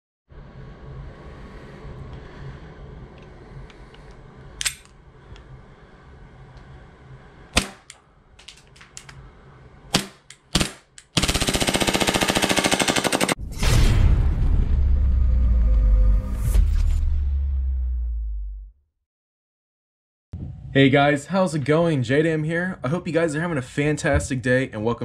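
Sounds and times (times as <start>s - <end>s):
loud deep rumble: 0.3s - 7.5s, 13.4s - 18.8s
airsoft pistol shots: 7.6s - 7.9s, 9.9s - 11.4s.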